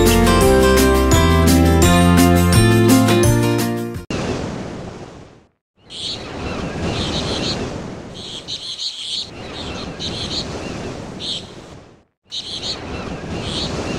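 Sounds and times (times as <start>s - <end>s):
birds chirping: 5.8s - 13.9s.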